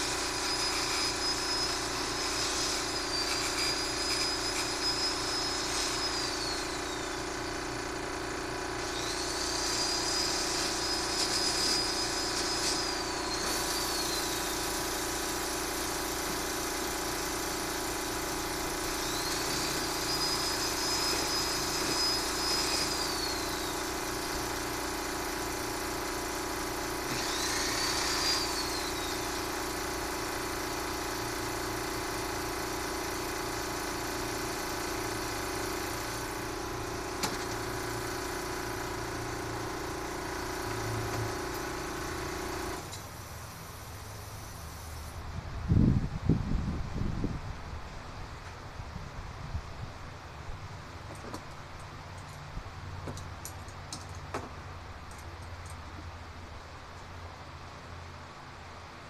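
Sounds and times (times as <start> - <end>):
angle grinder whine: 0.0 - 45.2
fan humming: 0.0 - 59.0.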